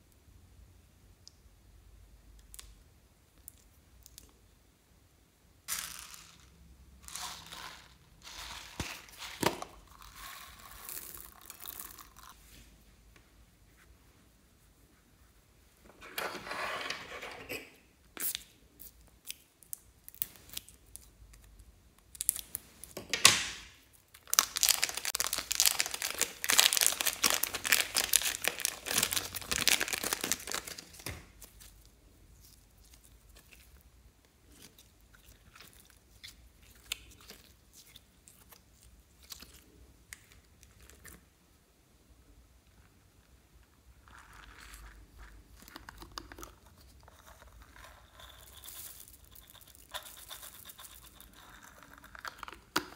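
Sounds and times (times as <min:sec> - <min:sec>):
slime squeezed and kneaded: 0:23.9 - 0:41.2.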